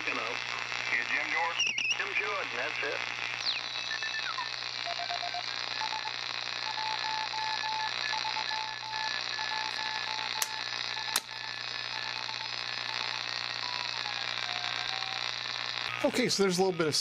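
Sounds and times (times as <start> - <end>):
radio static hiss: 0.0 - 17.0
sharp clicks: 10.3 - 11.3.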